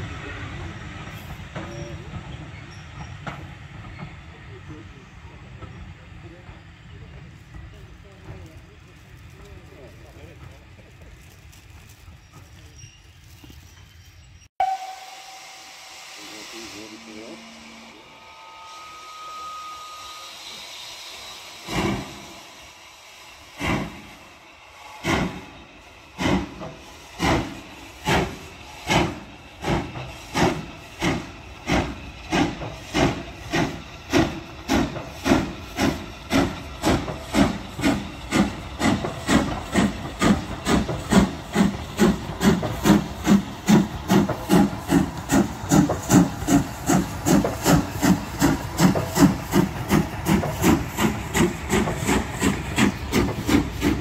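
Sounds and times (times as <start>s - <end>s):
steam locomotive chuffing: 0.0s - 54.0s
steam locomotive whistle: 14.6s - 22.8s.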